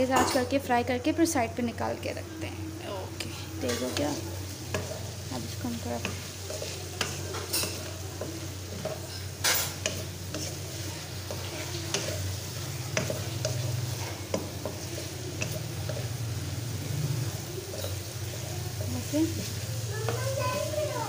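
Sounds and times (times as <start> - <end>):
vegetables sizzling: 0.0 - 21.0
spatula scraping a metal wok: 3.2 - 21.0.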